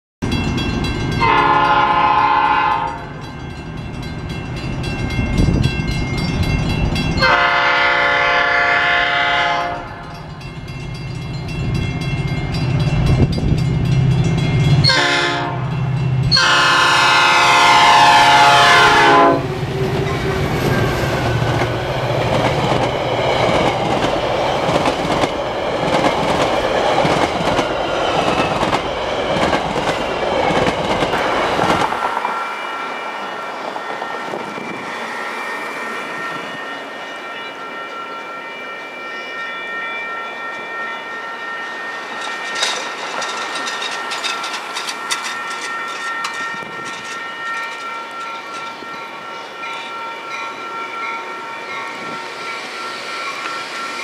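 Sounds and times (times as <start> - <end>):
train horn blasts: 1.1 - 3.3, 7.2 - 10.2, 14.7 - 21.8
train wheels clattering: 19.6 - 32.4, 42.0 - 48.8.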